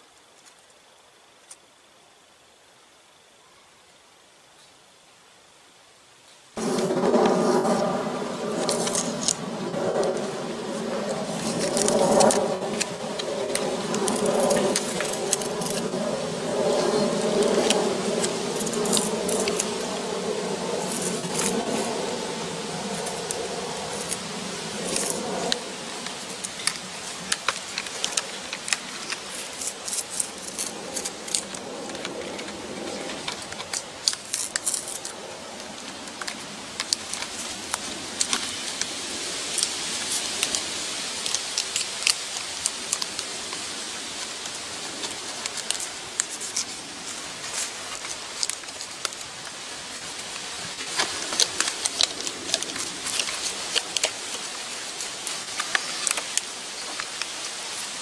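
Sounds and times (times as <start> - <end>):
steady hiss: 0.0 - 58.0
knife scratching bark: 6.7 - 58.0.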